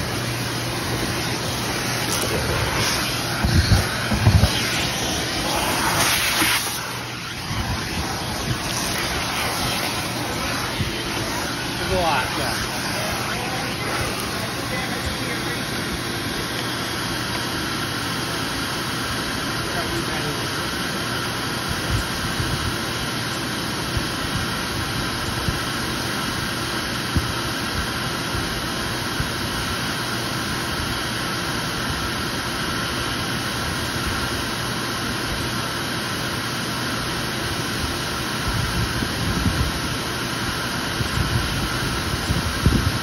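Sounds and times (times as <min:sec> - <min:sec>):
vent cleaning vacuum running: 0:00.0 - 0:43.0.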